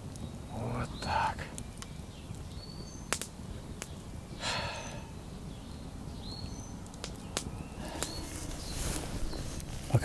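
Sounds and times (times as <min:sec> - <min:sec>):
campfire burning: 0:00.0 - 0:10.0
fire crackling pops: 0:00.0 - 0:10.0
breathy hiss: 0:04.4 - 0:05.2, 0:07.7 - 0:09.6.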